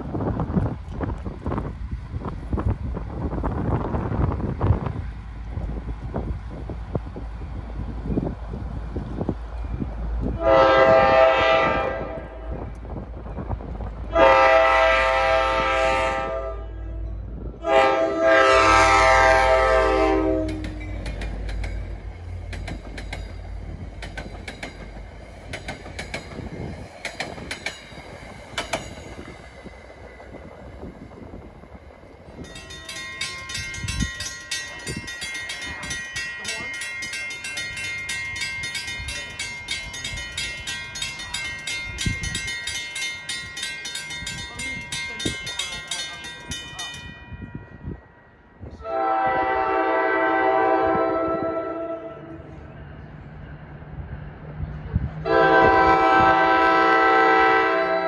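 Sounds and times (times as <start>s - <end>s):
train air horn: 10.4s - 12.6s, 14.1s - 17.0s, 17.6s - 20.9s, 48.8s - 52.4s, 55.2s - 58.0s
wheels clicking over rail joints: 20.2s - 47.2s.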